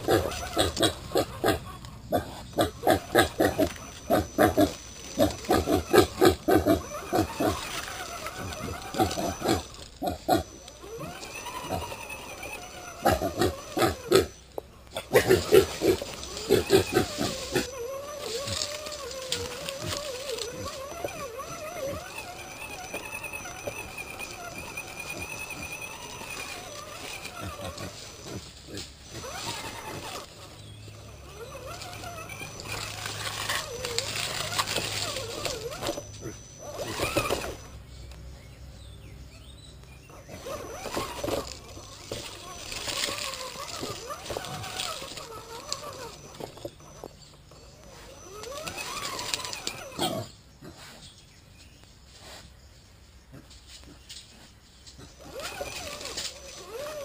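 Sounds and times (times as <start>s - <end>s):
pig grunting: 0.0s - 37.7s, 47.8s - 51.1s
toy car electric motor whining: 0.0s - 38.3s, 39.4s - 50.4s, 54.8s - 57.0s.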